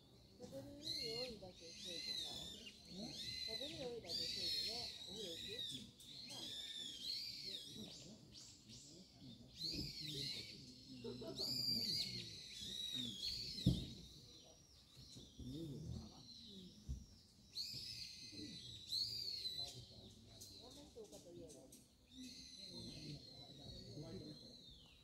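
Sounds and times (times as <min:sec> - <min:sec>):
faint voices murmuring: 0:00.0 - 0:25.0
bird whistling calls: 0:00.8 - 0:08.8, 0:09.5 - 0:10.9, 0:11.5 - 0:20.9, 0:22.1 - 0:25.0
soft thump: 0:13.6 - 0:14.0.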